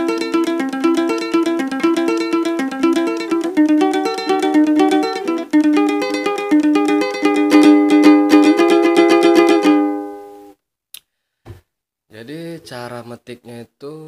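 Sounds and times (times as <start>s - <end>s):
three-string lute strummed: 0.0s - 10.5s.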